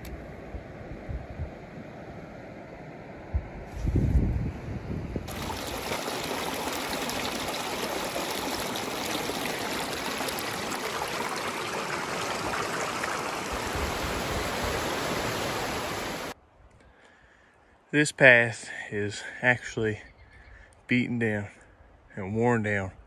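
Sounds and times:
water rushing over rocks: 5.3 - 16.4.

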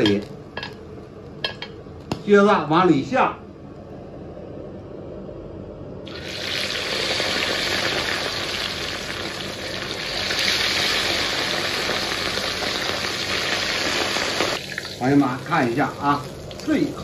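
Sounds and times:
fish sizzling in deep oil: 6.1 - 17.0
hot oil bubbling in a wok: 6.1 - 17.0.

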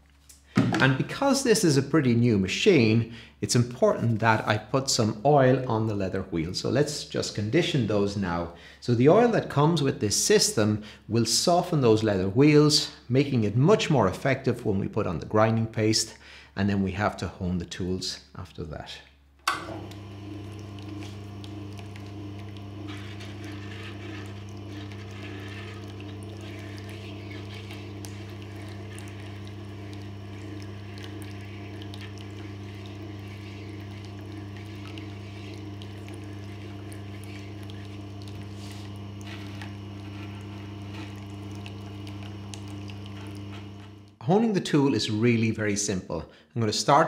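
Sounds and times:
sharpening machine motor humming: 19.5 - 44.2.

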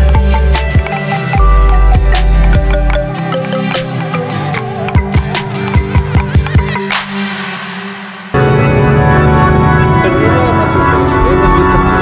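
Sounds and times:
electronic music kick-drum beat: 0.0 - 8.4.

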